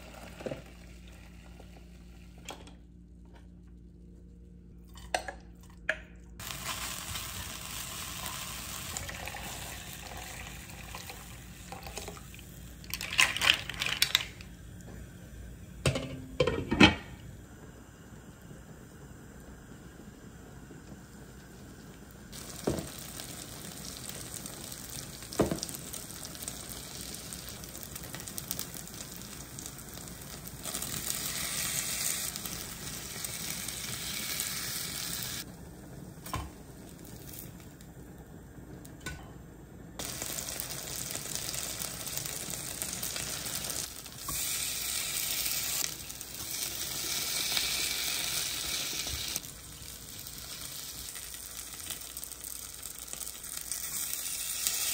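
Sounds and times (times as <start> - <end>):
pancakes sizzling in oil: 6.4 - 12.8, 18.6 - 35.5, 40.0 - 54.9.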